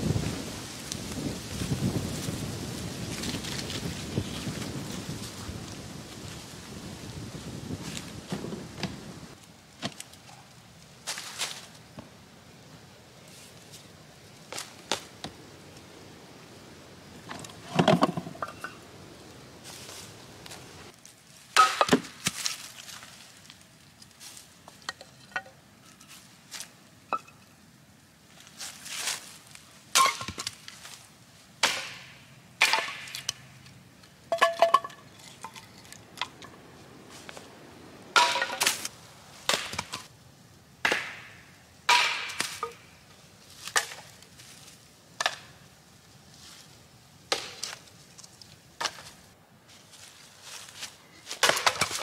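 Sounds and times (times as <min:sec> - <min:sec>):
hatchet chopping firewood: 0:21.6 - 0:22.6, 0:31.6 - 0:33.4, 0:38.2 - 0:40.0, 0:40.8 - 0:42.8, 0:47.3 - 0:47.8, 0:51.3 - 0:52.0.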